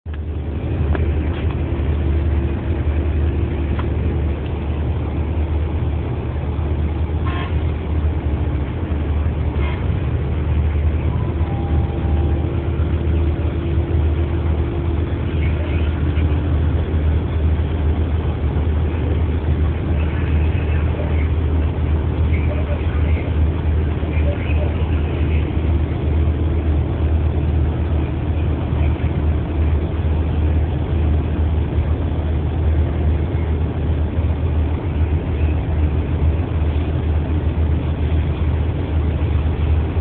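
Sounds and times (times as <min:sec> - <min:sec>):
low engine rumble: 0:00.0 - 0:40.0
constant hum: 0:00.1 - 0:40.0.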